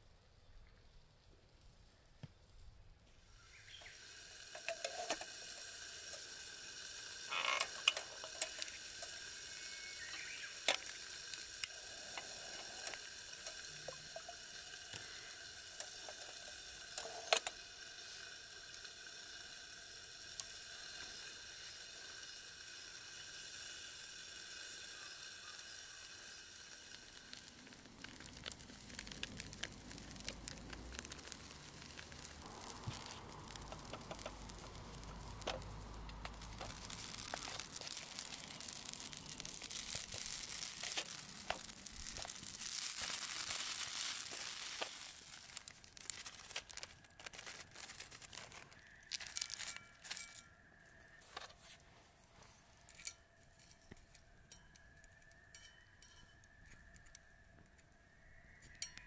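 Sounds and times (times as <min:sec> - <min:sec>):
wood fire hissing and whistling: 0:00.0 - 0:59.0
fire pops: 0:03.8 - 0:19.2, 0:26.7 - 0:50.3
rustling: 0:27.5 - 0:50.5.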